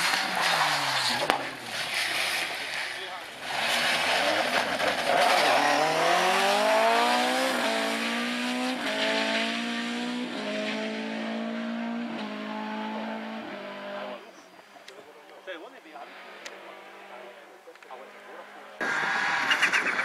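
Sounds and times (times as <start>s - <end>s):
tyre noise: 0.0s - 9.5s
rally car accelerating through gears: 0.0s - 14.2s.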